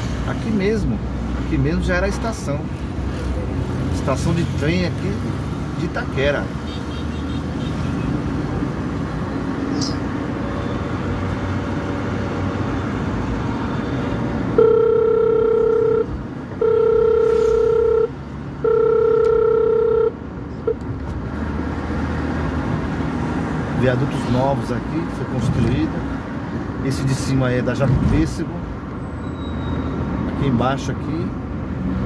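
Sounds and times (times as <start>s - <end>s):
road and engine noise in car: 0.0s - 32.0s
long steady beeps: 14.6s - 20.8s.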